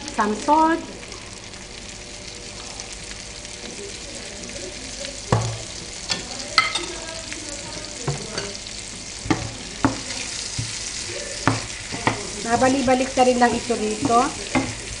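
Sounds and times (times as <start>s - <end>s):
butter sizzling in a frying pan: 0.0s - 15.0s.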